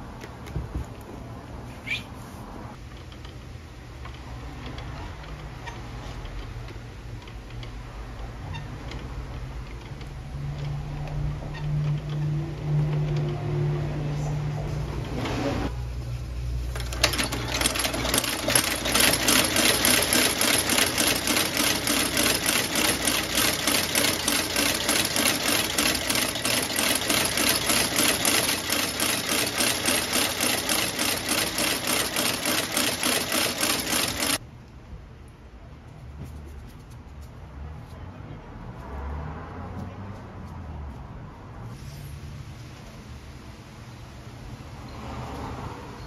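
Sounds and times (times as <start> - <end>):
stitching machine cycling: 16.7 - 34.4.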